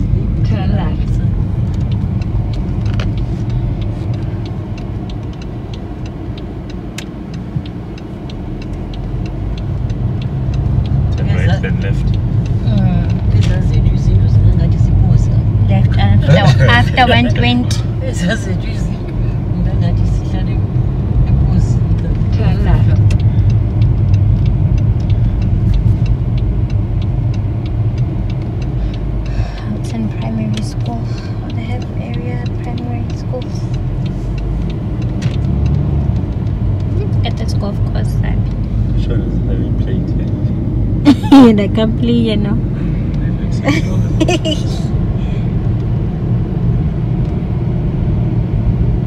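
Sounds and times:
engine and road rumble: 0.0 - 49.0
faint ticks: 1.6 - 11.2, 23.1 - 37.4.

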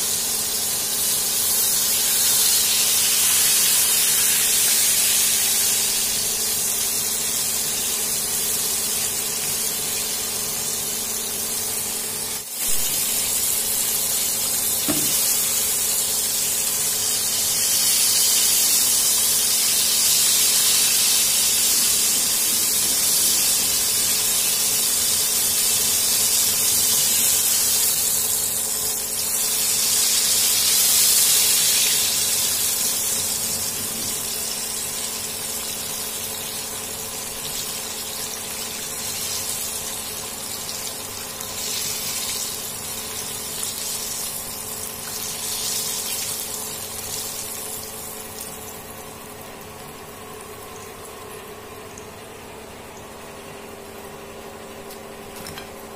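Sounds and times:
fish deep-frying in hot oil: 0.0 - 55.9.

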